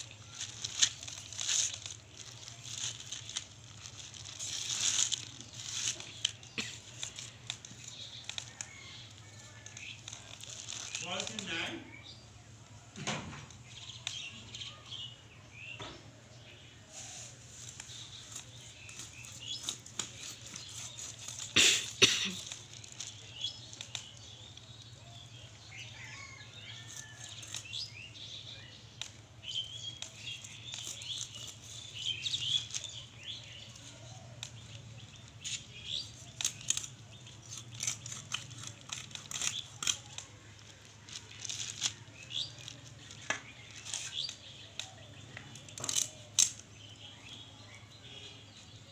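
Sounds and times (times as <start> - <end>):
plastic sheet crinkling: 0.0 - 11.9, 17.2 - 25.4, 29.0 - 46.6
birds chirping: 0.0 - 48.9
knocks and scrapes of cutting fish: 17.0 - 21.6.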